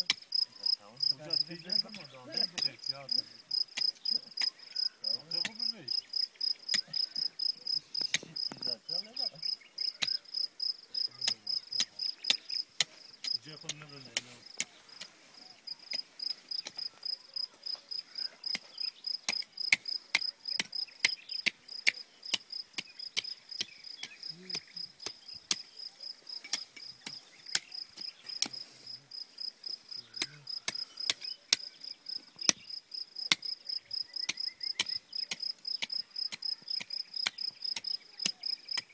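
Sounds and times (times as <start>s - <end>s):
crickets chirping: 0.0s - 38.8s.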